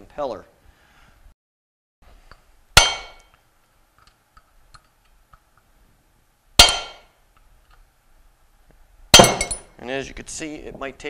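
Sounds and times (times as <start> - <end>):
metal-on-metal clang: 2.8 - 3.4, 6.6 - 7.1, 9.2 - 9.8.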